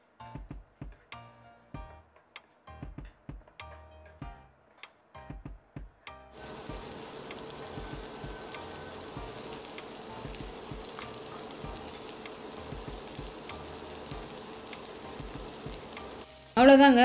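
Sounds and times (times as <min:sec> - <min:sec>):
food sizzling in a pan: 0:06.4 - 0:17.0.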